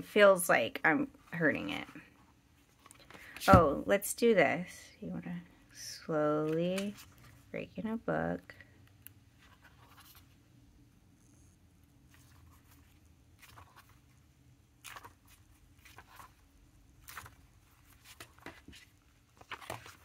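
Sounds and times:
paper pages rustling: 0:09.4 - 0:10.3, 0:12.1 - 0:14.2, 0:14.8 - 0:20.0.

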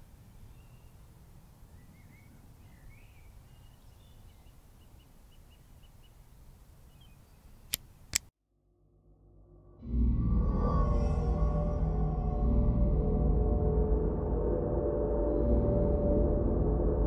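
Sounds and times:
bird chirps: 0:00.3 - 0:07.8
sharp clicks: 0:07.7 - 0:08.3.

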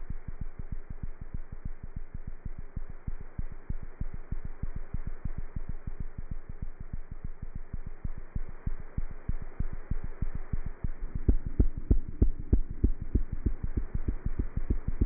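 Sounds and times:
steady hum: 0:01.5 - 0:15.0
heartbeat thumps: 0:07.8 - 0:15.0.

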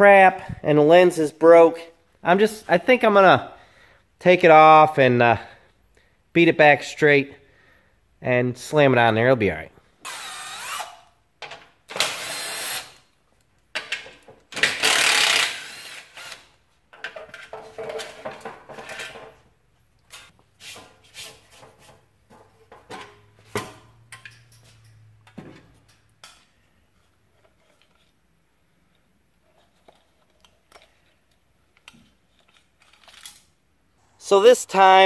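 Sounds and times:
cordless impact driver: 0:10.0 - 0:11.1, 0:11.9 - 0:13.0, 0:14.5 - 0:16.5.

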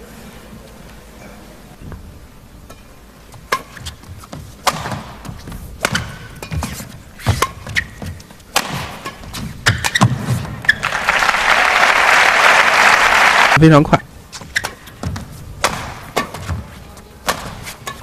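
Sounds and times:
shoes squeaking on court: 0:02.6 - 0:10.9, 0:14.3 - 0:15.5, 0:16.1 - 0:18.0
racket striking shuttlecock: 0:03.4 - 0:10.4, 0:14.5 - 0:18.0.

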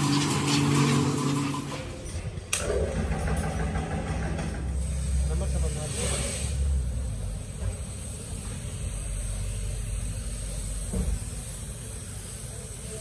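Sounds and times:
air compressor running: 0:00.0 - 0:13.0
thump: 0:10.9 - 0:11.2.

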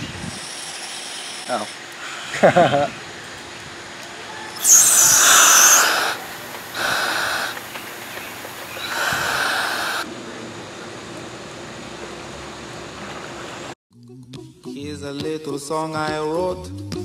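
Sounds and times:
air hissing through diving helmet: 0:00.0 - 0:03.2, 0:04.3 - 0:10.1.

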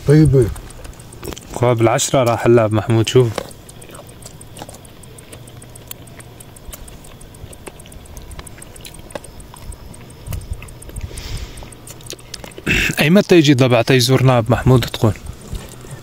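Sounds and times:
crickets chirping: 0:00.0 - 0:16.0
steady low hum: 0:00.0 - 0:16.0
short hiss: 0:11.0 - 0:11.6.

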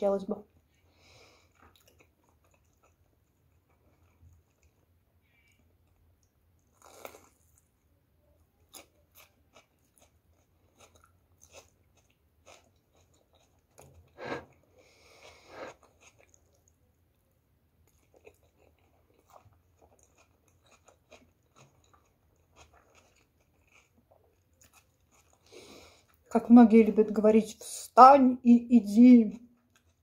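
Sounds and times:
chewing and crunching fritters: 0:00.4 - 0:27.0, 0:29.2 - 0:30.0.

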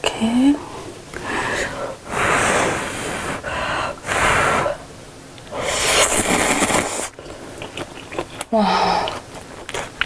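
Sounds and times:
noodles slurped noisily: 0:05.5 - 0:10.0.

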